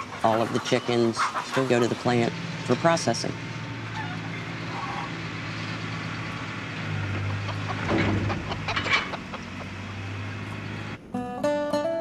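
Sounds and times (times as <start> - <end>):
chickens squawking and clucking: 0.0 - 11.0
truck engine idling: 0.0 - 11.0
acoustic guitar music: 6.6 - 12.0
knocks on wire crates: 7.3 - 9.3.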